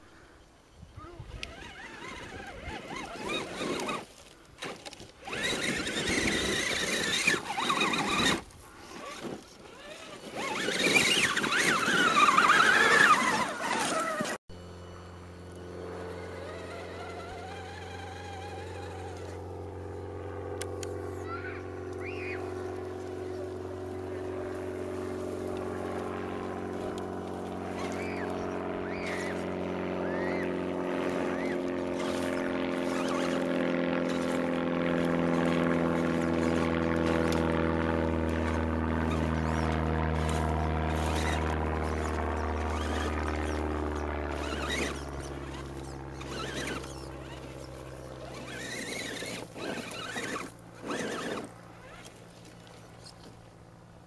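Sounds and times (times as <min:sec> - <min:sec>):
motor drone: 0:00.0 - 0:54.0
tyres scraping sandy dirt: 0:01.4 - 0:14.4, 0:16.1 - 0:19.4, 0:22.0 - 0:53.4.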